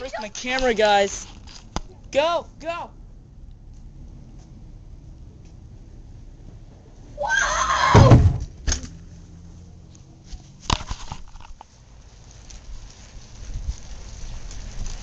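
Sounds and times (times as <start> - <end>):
shrill wavering yell: 7.2 - 8.2
sharp knocks: 7.9 - 8.9
heavy thump: 7.9 - 9.0.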